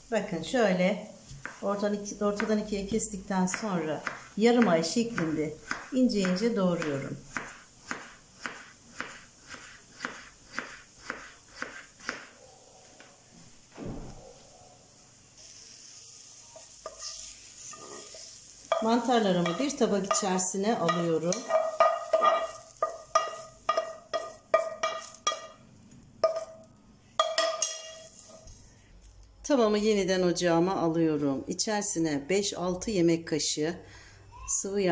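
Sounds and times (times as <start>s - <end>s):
spatula knocking on frying pan: 18.7s - 25.6s, 26.2s - 26.6s, 27.2s - 28.0s.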